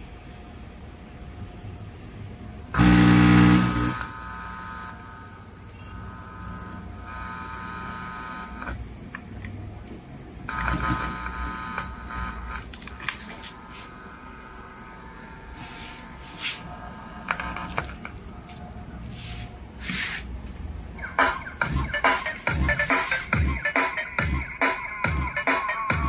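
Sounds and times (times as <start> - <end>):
amplifier buzzing: 2.6 - 9.0, 10.5 - 19.0, 20.7 - 26.0.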